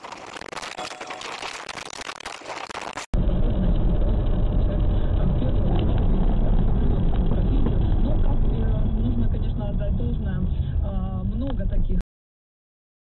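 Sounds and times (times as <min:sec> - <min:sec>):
hissy crackling noise: 0:00.0 - 0:03.1
road and engine noise inside car: 0:03.2 - 0:12.0.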